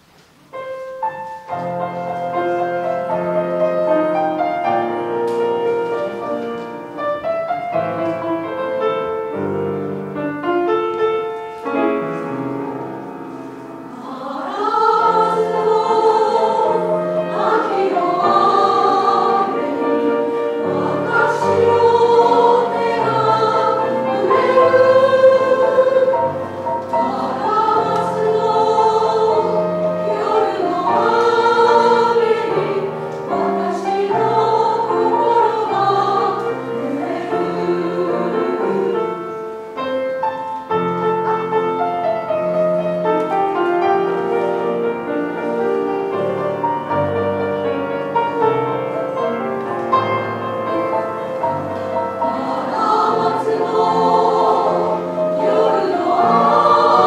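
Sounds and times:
piano accompaniment: 0.0 - 57.0
women's choir singing: 12.7 - 39.8, 43.6 - 57.0.

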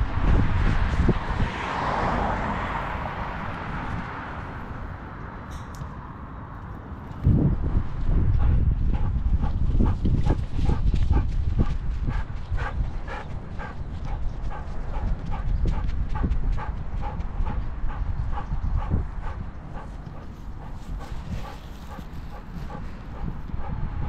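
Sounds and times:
wind rumble on microphone: 0.0 - 24.0
dog breathing and running: 6.8 - 24.0.

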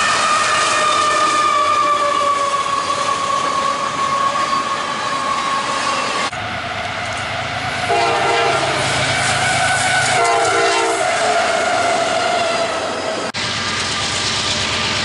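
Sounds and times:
locomotive air horn: 0.0 - 4.8, 7.7 - 13.2
locomotive engine rumbling: 0.0 - 15.0.

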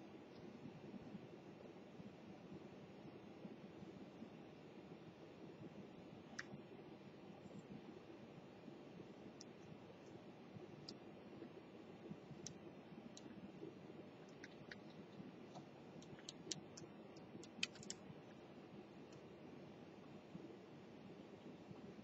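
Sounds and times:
faint room hiss: 0.0 - 22.0
controller keys clicking: 17.4 - 18.0.

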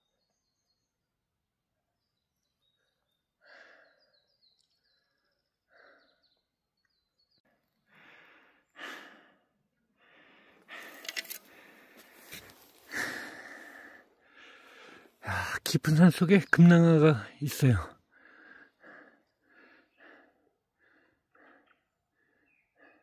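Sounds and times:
faint bird chirps: 0.0 - 7.7, 19.2 - 23.0
person breathing: 2.8 - 6.4, 7.6 - 15.6, 18.0 - 23.0.

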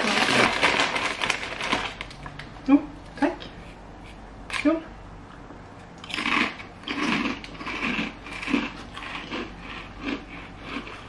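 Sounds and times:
chips crunching while chewed: 6.0 - 11.0.

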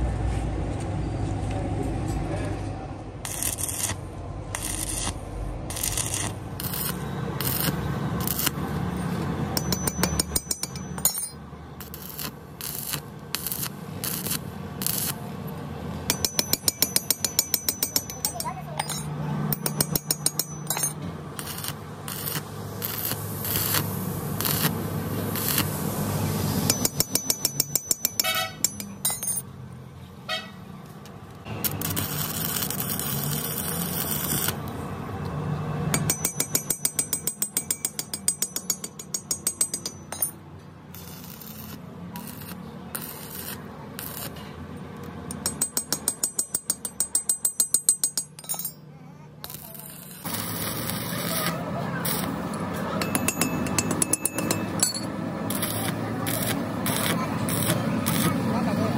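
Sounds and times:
welding arc crackling: 3.2 - 9.0, 11.8 - 15.4, 19.8 - 28.6, 31.5 - 34.7, 40.9 - 44.4, 49.5 - 52.6, 55.4 - 58.9.

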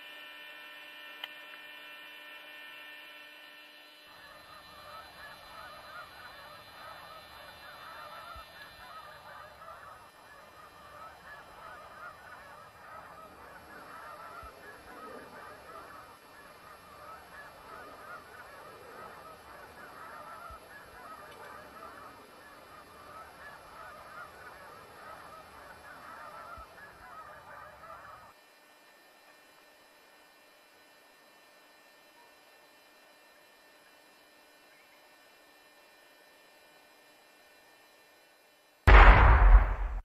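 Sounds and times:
flock of birds honking: 4.0 - 28.4.

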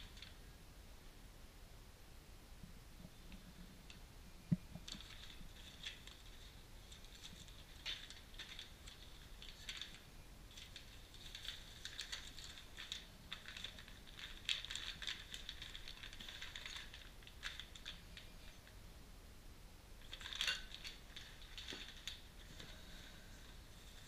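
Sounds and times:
plastic bags crinkling: 4.7 - 18.7, 20.0 - 24.0.

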